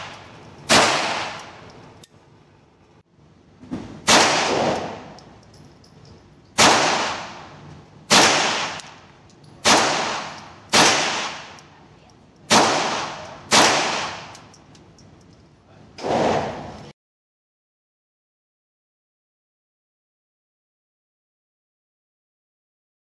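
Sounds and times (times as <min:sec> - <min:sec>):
pistol shots echoing indoors: 0:00.0 - 0:01.6, 0:04.0 - 0:05.2, 0:06.6 - 0:07.5, 0:08.1 - 0:09.0, 0:09.6 - 0:11.6, 0:12.5 - 0:14.4.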